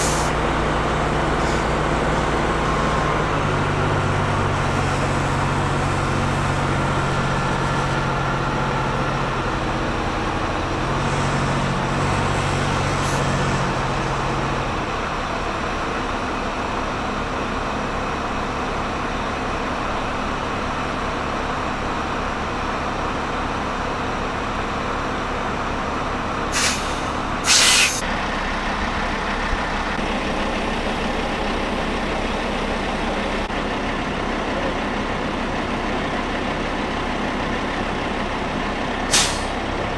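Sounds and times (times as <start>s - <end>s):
diesel engine running under load: 0.0s - 39.9s
air release hisses: 26.6s - 28.0s, 39.1s - 39.5s.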